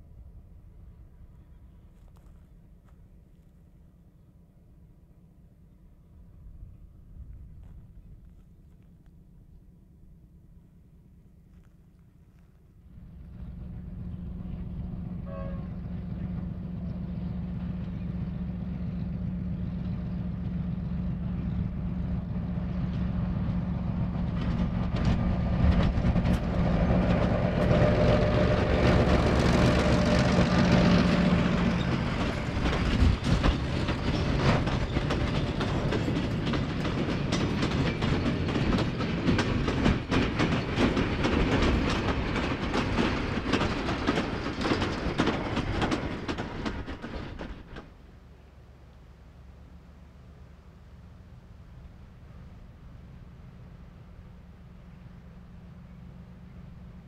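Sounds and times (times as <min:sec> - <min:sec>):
diesel locomotive engine: 0:00.0 - 0:57.0
train wheels clacking on rails: 0:13.2 - 0:48.0.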